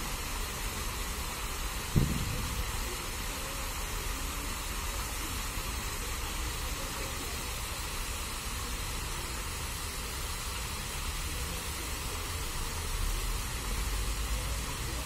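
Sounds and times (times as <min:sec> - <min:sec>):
fountain water splashing: 0:00.0 - 0:15.0.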